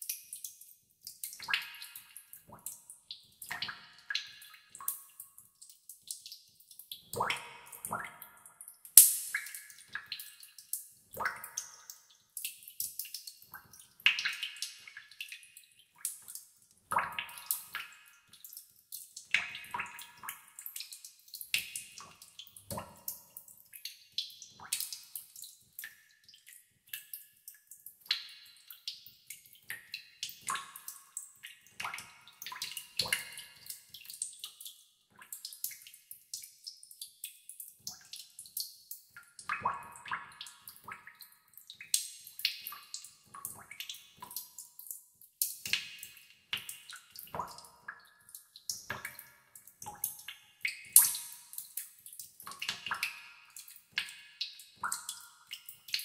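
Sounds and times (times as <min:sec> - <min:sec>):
water drops plinking into tub: 0:03.4 - 0:15.4, 0:29.6 - 0:36.8, 0:37.8 - 0:56.0.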